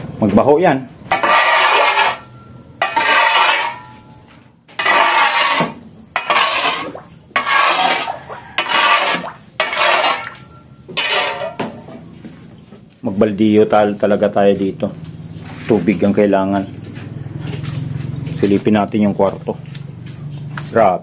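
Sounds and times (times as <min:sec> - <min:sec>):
shovel scraping mud on concrete: 0:01.1 - 0:04.0, 0:04.7 - 0:11.7.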